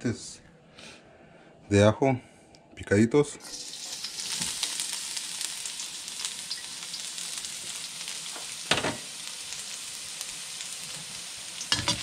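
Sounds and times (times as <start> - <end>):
garlic sizzling in a wok: 3.6 - 12.0.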